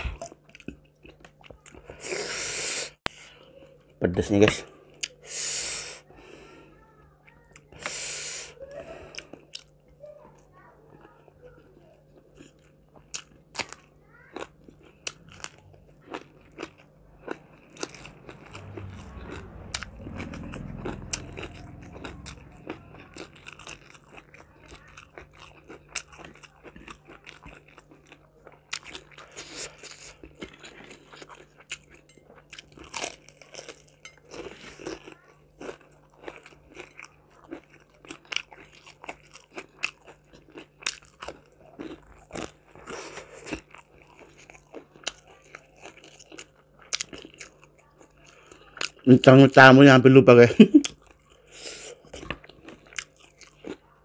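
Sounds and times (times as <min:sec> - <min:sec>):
faint low hum: 0:06.1 - 0:54.0
crunching bites and chewing: 0:12.2 - 0:49.1, 0:50.8 - 0:54.0
low rumble: 0:17.5 - 0:24.4.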